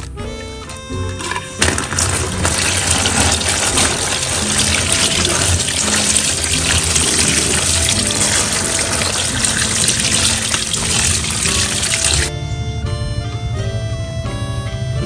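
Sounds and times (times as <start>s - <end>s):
tap water splashing in sink: 1.6s - 12.3s.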